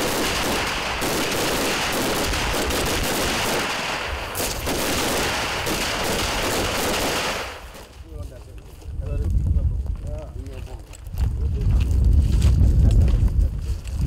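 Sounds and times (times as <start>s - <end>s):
rapid overlapping rifle fire: 0.0s - 8.0s.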